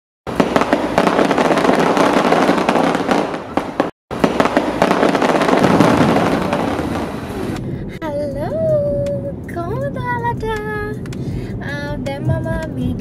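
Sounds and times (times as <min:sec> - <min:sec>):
fireworks popping and banging: 0:00.3 - 0:07.6.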